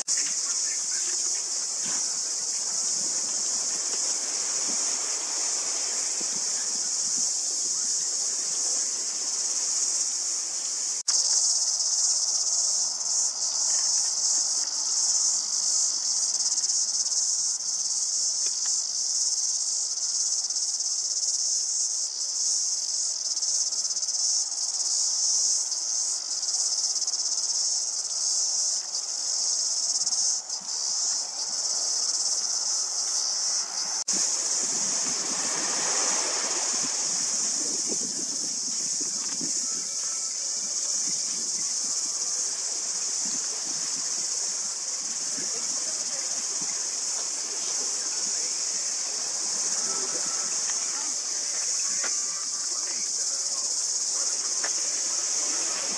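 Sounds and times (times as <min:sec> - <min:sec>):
insects shrilling: 0:00.0 - 0:55.9
low rushing noise: 0:33.6 - 0:39.6.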